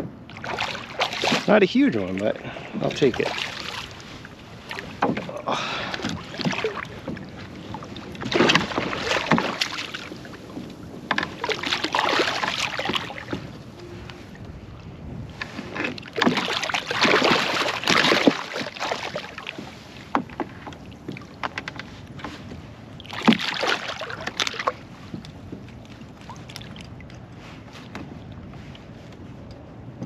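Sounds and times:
fish splashing in water: 0.3 - 1.6, 2.2 - 4.0, 4.7 - 10.3, 11.2 - 13.4, 16.0 - 19.6, 23.0 - 24.8.

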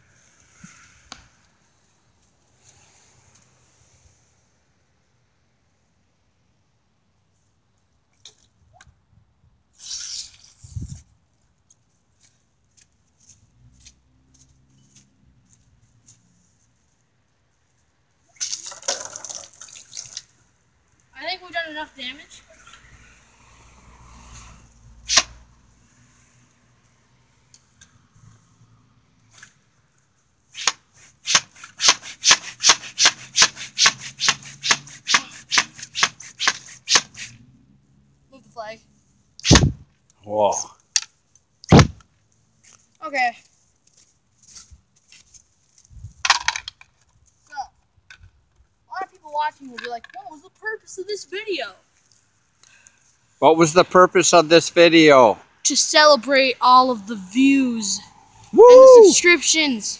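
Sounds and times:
plastic water gun pumping: 18.4 - 20.3, 30.6 - 37.3
low thud: 39.5 - 39.9, 41.7 - 42.0.

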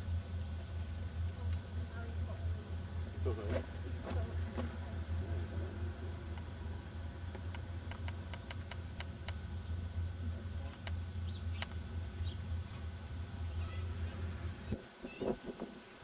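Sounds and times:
steady low hum: 0.0 - 16.0
chirps: 11.2 - 13.0.

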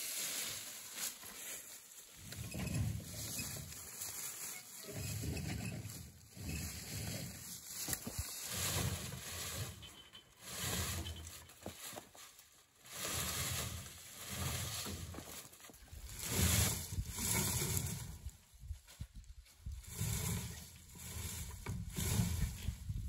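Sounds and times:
footsteps crunching through dry leaves: 0.0 - 2.3, 3.1 - 5.2, 6.1 - 17.8.

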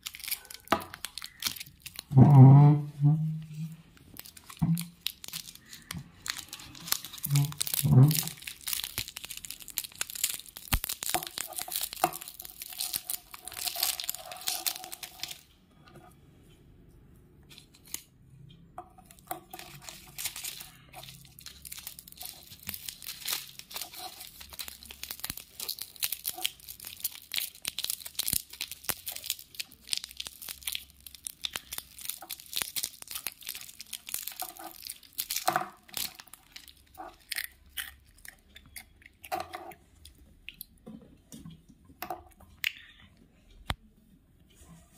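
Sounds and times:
foil wrapper crinkling: 0.0 - 2.1, 4.0 - 15.5, 19.4 - 37.5.

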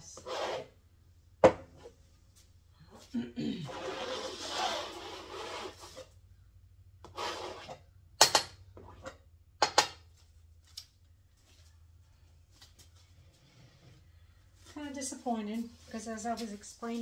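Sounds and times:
scraper rasping through wet paint: 3.7 - 6.2, 7.0 - 7.8.

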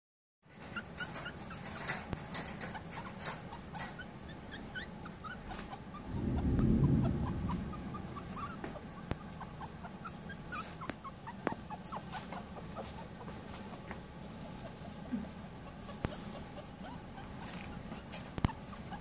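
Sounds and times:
puppy squeaking: 0.6 - 6.1, 8.2 - 19.0
low rumble: 5.9 - 9.6.

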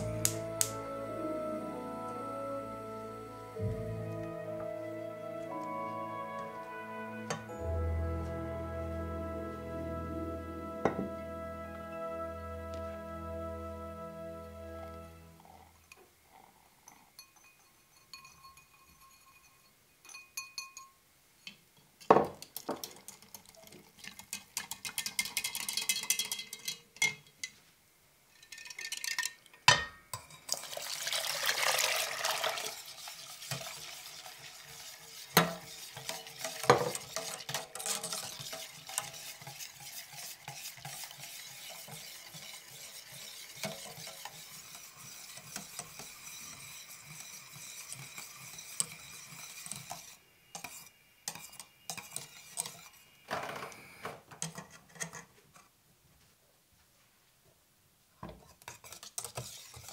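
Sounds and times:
whisking in metal pot: 22.8 - 26.8, 30.1 - 53.1, 58.6 - 59.9
liquid pouring into pot: 30.4 - 40.0.

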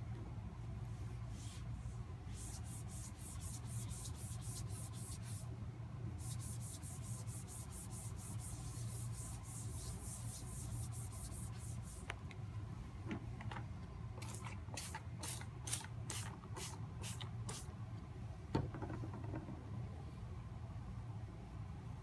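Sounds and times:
steady low hum: 0.0 - 18.7
cloth scrubbing a board: 2.3 - 5.4, 6.2 - 12.0.

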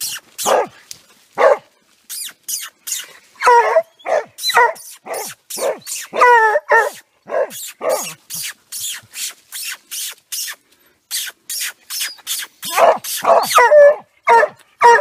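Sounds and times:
hound barking and baying: 0.4 - 0.8, 1.4 - 1.7, 3.4 - 8.2, 12.7 - 15.0.

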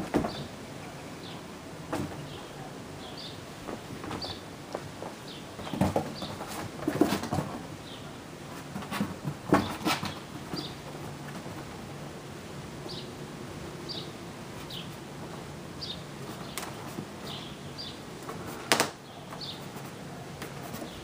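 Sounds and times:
bird chirping: 0.2 - 4.5, 5.2 - 6.6, 7.8 - 8.2, 9.5 - 11.0, 12.8 - 13.2, 13.8 - 15.0, 15.8 - 18.1, 19.0 - 21.0
claws scrabbling on cardboard: 3.6 - 7.8, 8.5 - 12.0, 16.2 - 17.4, 18.2 - 21.0.

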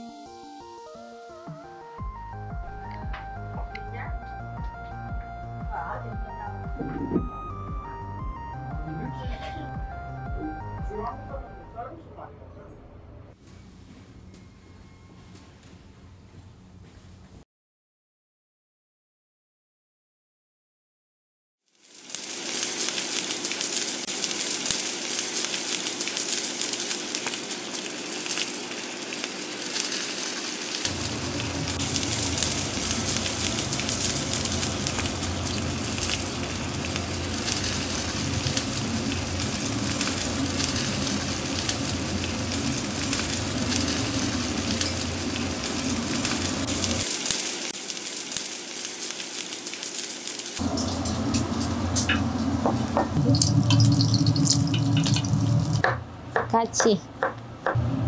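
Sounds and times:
meat sizzling on a grill: 0.0 - 1.5, 21.7 - 55.8
low hum: 6.3 - 11.9, 30.9 - 47.0, 50.6 - 55.8
egg frying in oil: 21.7 - 56.0.

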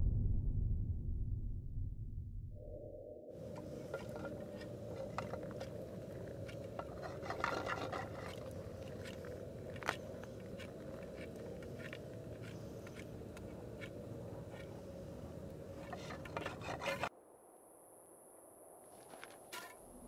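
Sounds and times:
campfire crackling and popping: 3.4 - 16.4.

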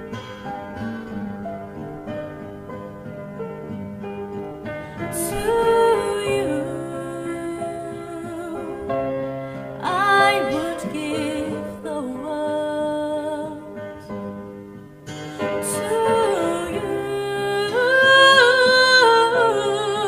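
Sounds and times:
soft instrumental backing: 0.0 - 19.8
woman singing a slow ballad: 5.0 - 14.0, 15.3 - 20.0.

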